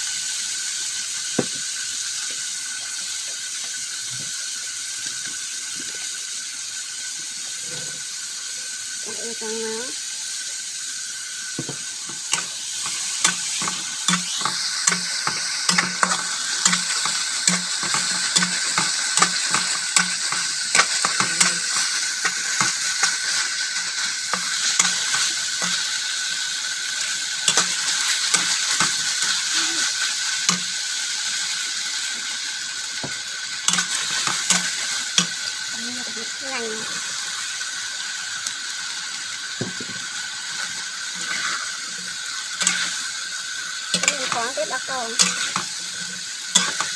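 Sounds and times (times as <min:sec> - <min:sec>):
meat sizzling in a wok: 0:00.0 - 0:46.9
spatula scraping a pan: 0:12.1 - 0:25.9, 0:27.4 - 0:29.5, 0:33.7 - 0:35.4, 0:40.6 - 0:43.2, 0:43.9 - 0:46.9.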